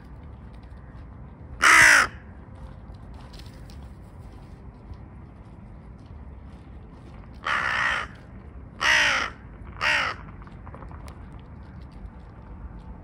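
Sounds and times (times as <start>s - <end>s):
crow cawing: 1.6s - 2.2s, 7.4s - 8.2s, 8.8s - 10.3s.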